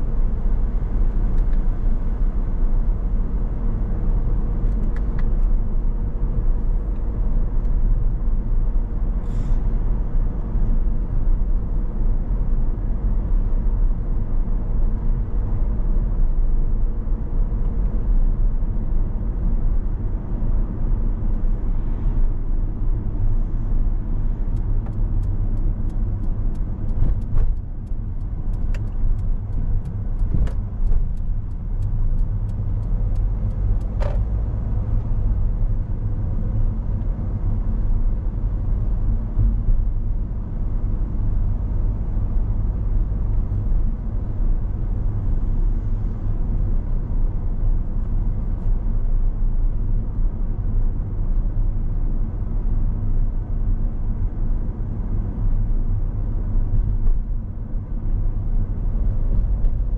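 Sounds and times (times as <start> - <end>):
car tyres and engine rumble: 0.0 - 59.9.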